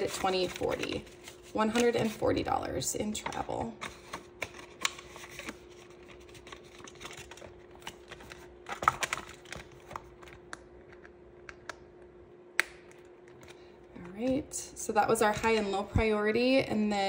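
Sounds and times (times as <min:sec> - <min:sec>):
paper rustling: 0:00.0 - 0:02.2, 0:03.2 - 0:10.3
faint steady hum: 0:00.0 - 0:17.0.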